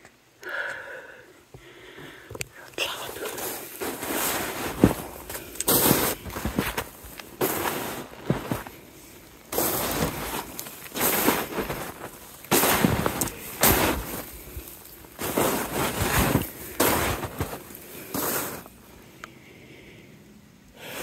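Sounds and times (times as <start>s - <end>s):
footsteps crunching through snow: 3.0s - 18.8s.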